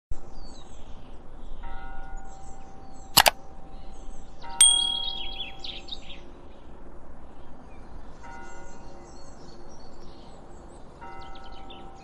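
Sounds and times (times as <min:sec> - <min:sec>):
sharp double click: 0:03.2 - 0:03.4, 0:04.6 - 0:05.4
ringing chimes: 0:04.6 - 0:05.5
birdsong: 0:04.6 - 0:05.8.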